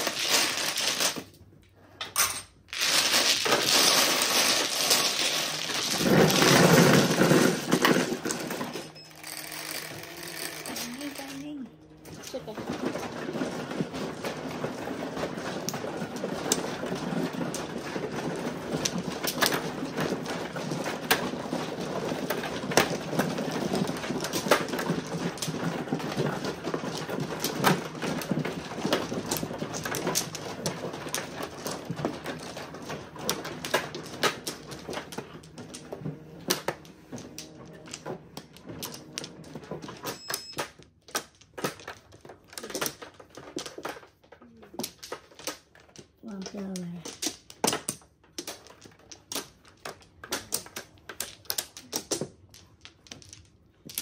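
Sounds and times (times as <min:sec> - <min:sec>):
mahjong tiles clattering: 0:00.0 - 0:54.0.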